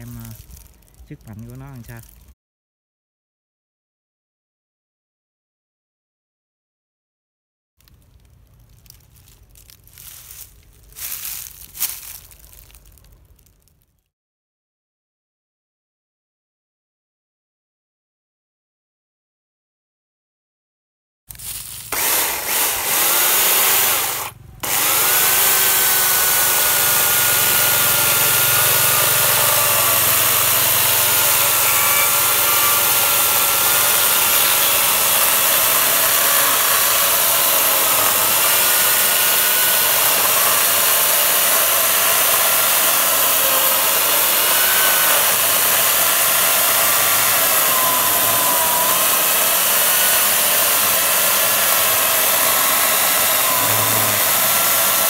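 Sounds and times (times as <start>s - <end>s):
electric chainsaw cutting log: 21.9s - 55.0s.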